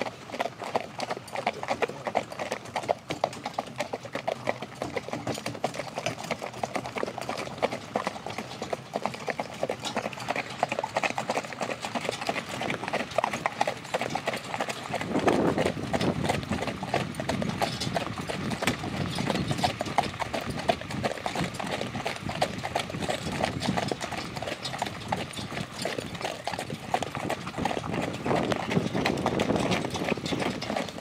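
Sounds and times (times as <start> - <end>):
horse hooves on sand: 0.0 - 31.0.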